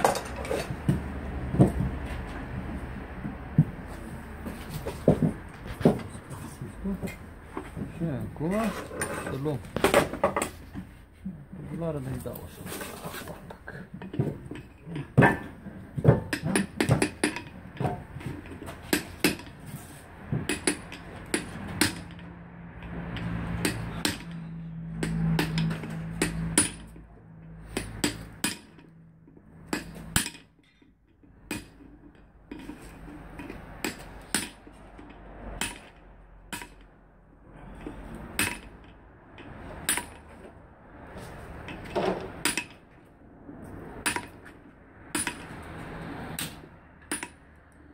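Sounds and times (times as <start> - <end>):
hammer striking steel chisel: 20.4 - 22.2, 23.2 - 27.0, 27.6 - 28.9, 29.6 - 30.8, 33.8 - 34.7, 35.5 - 36.9, 38.2 - 38.8, 42.4 - 42.8, 44.0 - 44.4, 45.1 - 45.6, 46.4 - 47.6.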